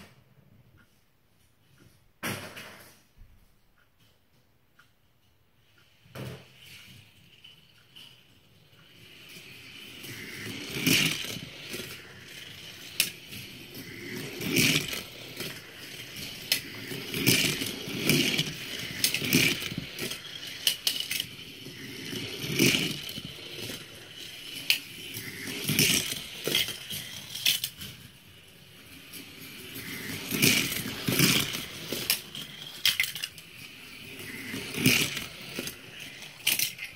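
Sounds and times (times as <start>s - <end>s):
toy cars clattering and clinking: 5.6s - 36.9s.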